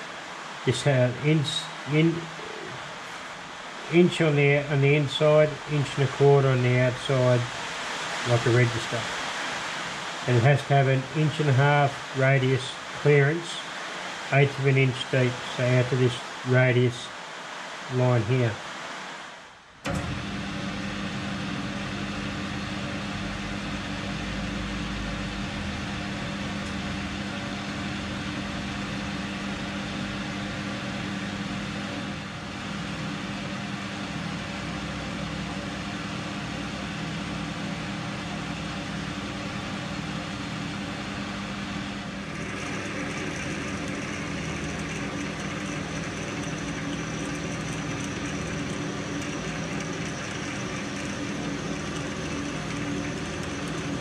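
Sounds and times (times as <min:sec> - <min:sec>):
metal lathe motor hum: 0:19.8 - 0:54.0.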